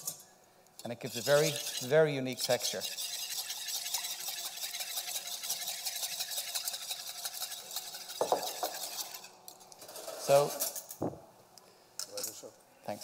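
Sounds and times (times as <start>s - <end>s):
whisk clinking on bowl: 1.1s - 9.3s
wire whisk beating in a bowl: 1.1s - 9.3s.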